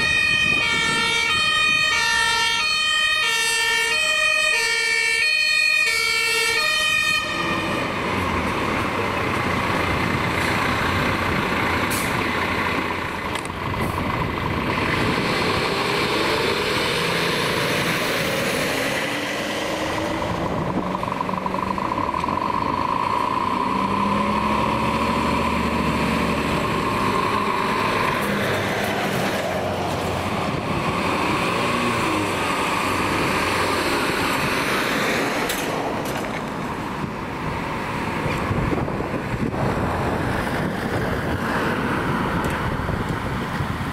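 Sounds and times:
two-tone emergency siren: 0.0s - 8.1s
vehicle engines driving past: 7.2s - 43.9s.

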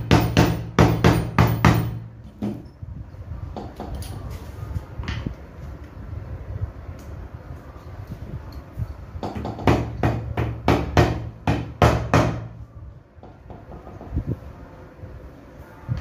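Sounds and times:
hammer blows on nails: 0.0s - 2.5s.

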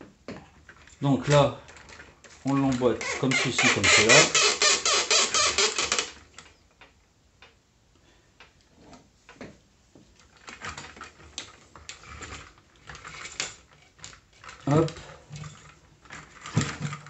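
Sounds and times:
plastic toy parts clicking: 0.7s - 7.6s.

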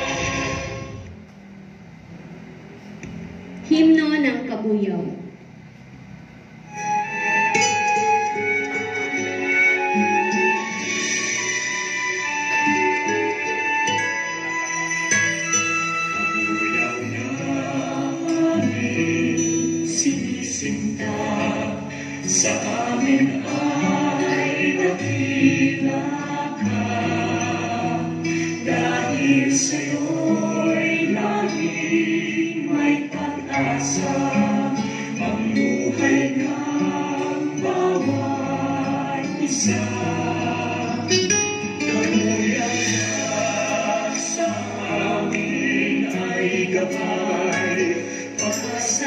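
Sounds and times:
choir singing a hymn: 0.0s - 1.1s, 15.5s - 49.0s
instrumental accompaniment: 6.6s - 49.0s.

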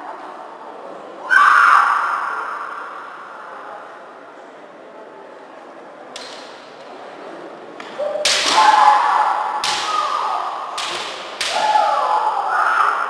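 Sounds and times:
bamboo swords striking: 6.2s - 6.8s, 7.8s - 12.1s
fencers shouting: 7.9s - 13.0s.

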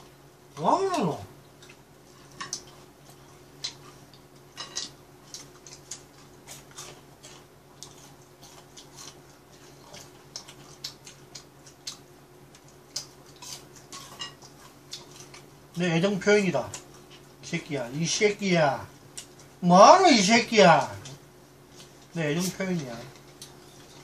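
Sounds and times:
steady low hum: 0.0s - 24.0s
chewing crunches and clicks: 1.5s - 15.5s
chopsticks on plates: 3.6s - 6.0s.

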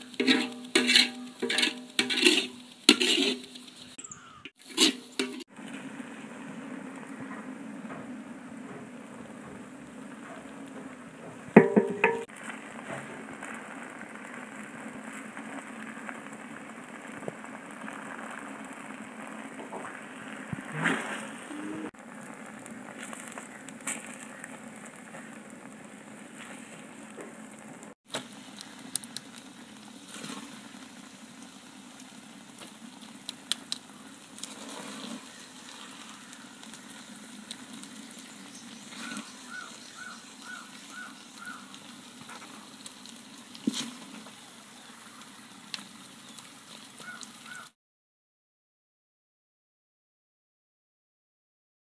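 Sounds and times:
spoon scraping metal pan: 0.0s - 5.5s, 11.6s - 12.3s
knocks on pan: 11.6s - 12.3s.

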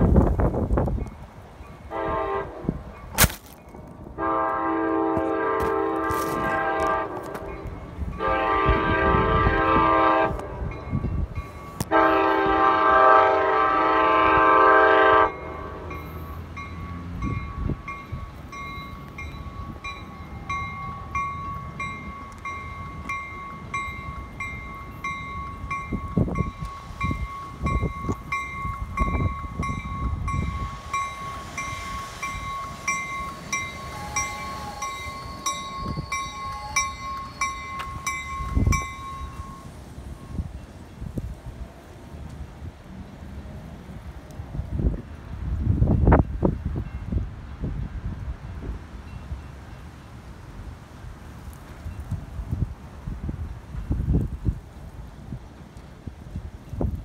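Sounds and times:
railroad crossing bell ringing: 1.0s - 13.0s, 14.9s - 40.8s, 46.2s - 47.2s, 49.0s - 50.1s
train air horn blasts: 1.9s - 2.8s, 4.2s - 7.6s, 8.2s - 10.7s, 11.8s - 16.4s, 30.4s - 38.7s.

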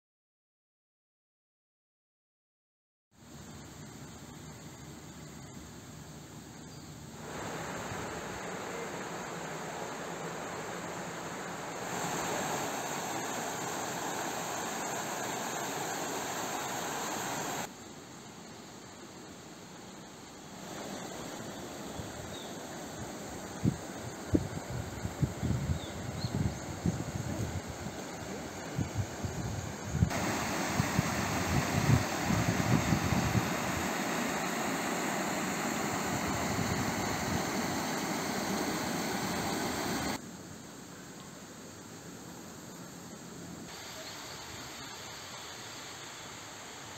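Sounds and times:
flowing water rushing: 7.2s - 17.7s, 27.4s - 40.2s.

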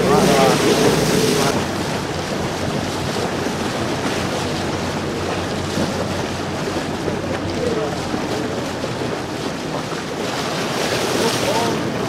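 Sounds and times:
diesel engine hum: 0.0s - 9.2s
sea wash: 0.0s - 12.0s
wind buffeting microphone: 0.0s - 12.0s.

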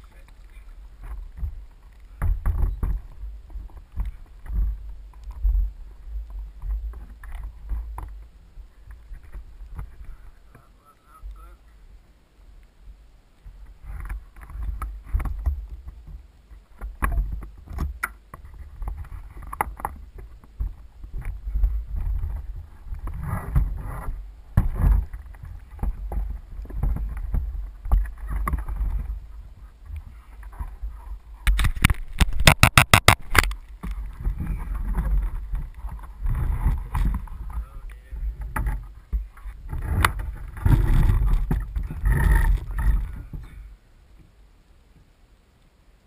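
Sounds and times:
low wind rumble on microphone: 0.0s - 45.1s
water splashing around a boat: 13.4s - 44.3s.

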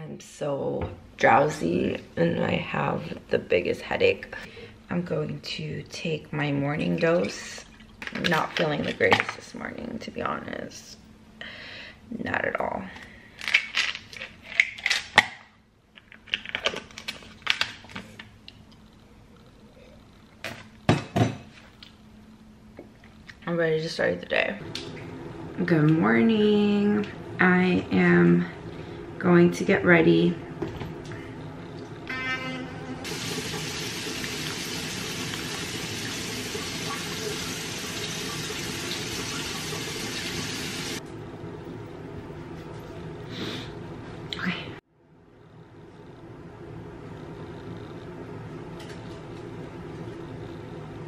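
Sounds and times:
electric toothbrush buzzing: 32.1s - 41.0s
faucet running: 33.0s - 41.0s.

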